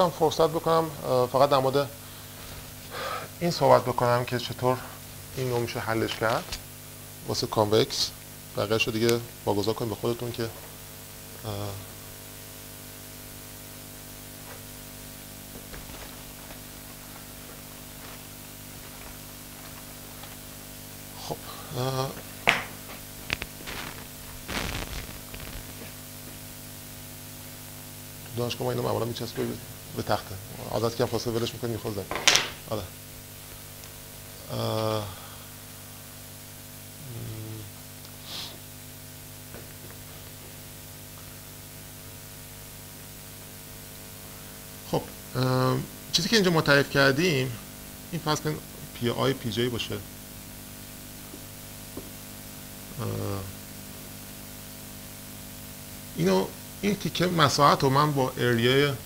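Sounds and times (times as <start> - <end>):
electrical hum and hiss: 0.0 - 59.0
man's hesitation noises: 19.6 - 26.0, 34.4 - 35.5, 37.0 - 38.7, 52.9 - 53.6
brief hiss: 38.2 - 38.6.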